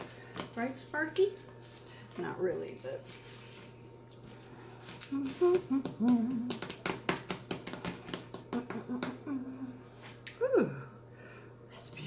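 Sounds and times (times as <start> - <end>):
hands patting raw meat: 4.8 - 9.4
woman humming: 5.0 - 6.8, 8.5 - 11.0.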